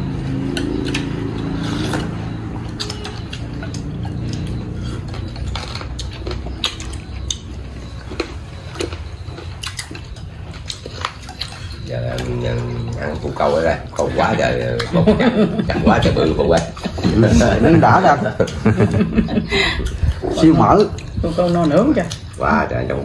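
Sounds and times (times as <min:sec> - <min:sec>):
utensils clicking against bowls: 0:00.3 - 0:15.4.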